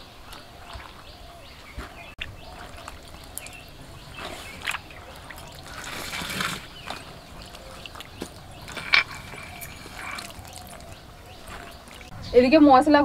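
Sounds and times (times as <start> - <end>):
hands scooping fruit from water: 2.2 - 12.1
water splashing in a bowl: 2.2 - 12.1.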